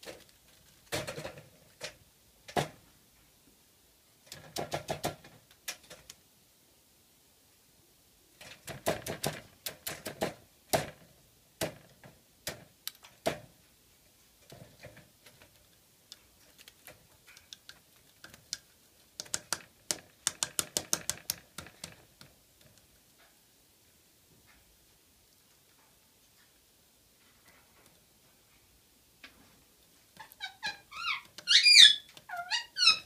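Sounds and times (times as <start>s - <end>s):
woodpecker tapping on pine cone: 17.4s - 22.3s.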